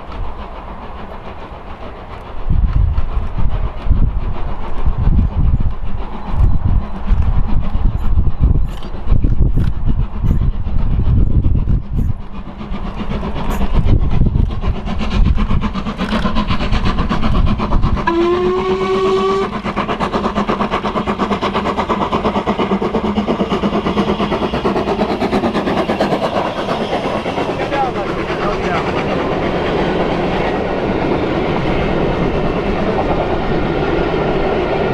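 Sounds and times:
steam locomotive exhaust: 0.0 - 34.9
steam whistle blast: 18.1 - 19.5.

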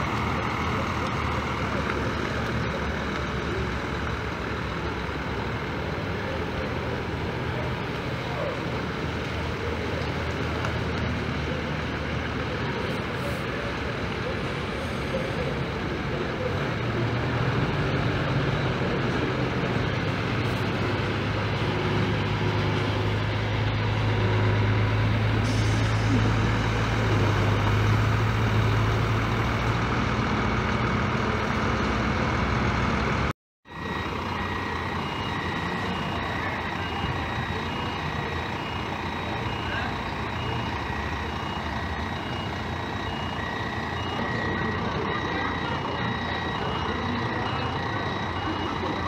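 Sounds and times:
bus diesel engine running: 0.0 - 49.0
reversing alarm beeping: 33.7 - 49.0.

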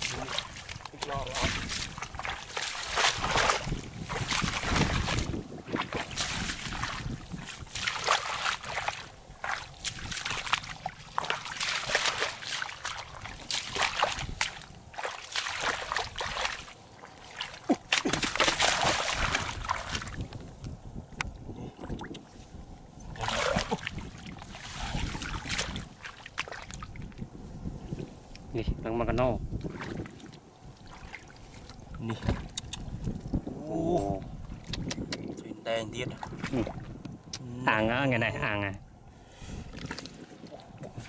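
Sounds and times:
footsteps squelching through mud: 0.0 - 20.5, 23.1 - 27.2, 29.6 - 33.3, 39.6 - 41.0
water sloshing: 0.0 - 20.5, 21.8 - 27.2, 29.5 - 33.5, 36.0 - 37.2, 39.5 - 41.0.

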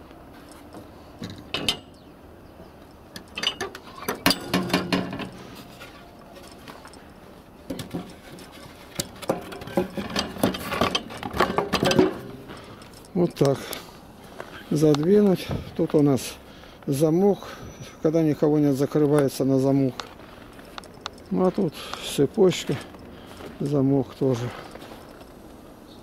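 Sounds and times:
metal gate bolt rattling and clicking: 1.2 - 2.1, 3.1 - 7.1, 7.7 - 13.5.

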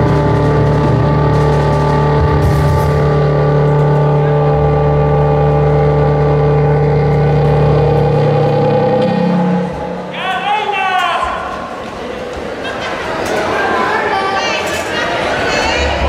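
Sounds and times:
distorted electric guitar chord: 0.0 - 10.1.

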